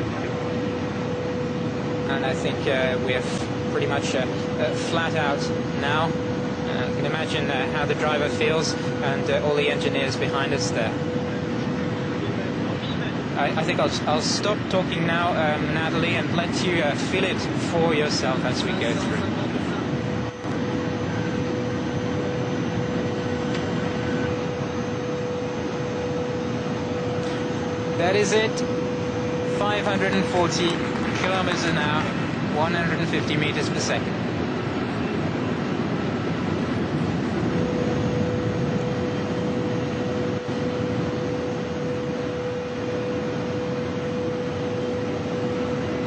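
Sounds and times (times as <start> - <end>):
high-speed train roaring: 0.0 - 46.0
mid-pitched whine: 0.0 - 46.0
high-speed train rushing: 29.5 - 34.2.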